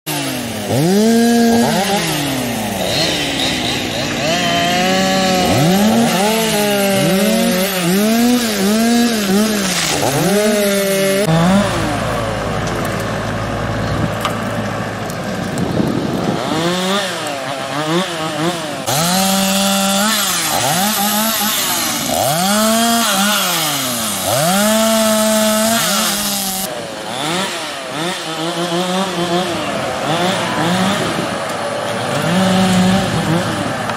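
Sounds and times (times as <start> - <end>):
chainsaw cutting wood: 0.1 - 33.9
low steady engine rumble: 11.3 - 16.4.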